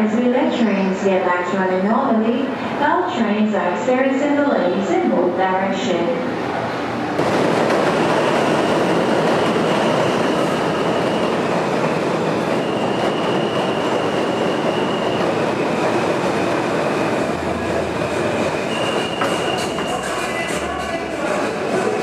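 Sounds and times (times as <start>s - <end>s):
train wheel-on-rail noise: 6.3s - 22.0s
high wheel squeals: 12.5s - 15.8s, 18.4s - 20.3s.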